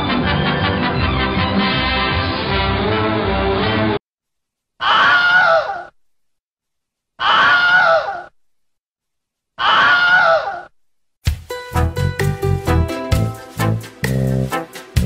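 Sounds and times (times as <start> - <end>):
music: 0.0 - 4.0, 11.2 - 15.0
wavering scream: 4.8 - 5.9, 7.2 - 8.3, 9.6 - 10.7.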